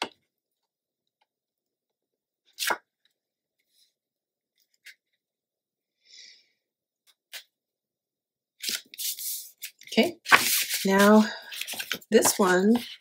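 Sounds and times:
paper rustling: 8.6 - 13.0.

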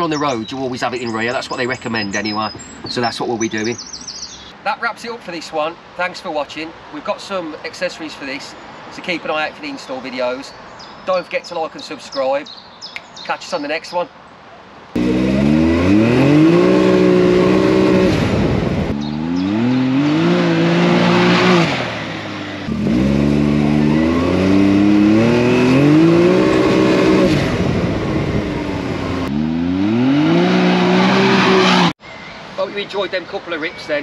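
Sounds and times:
engine revving hard: 15.0 - 32.0.

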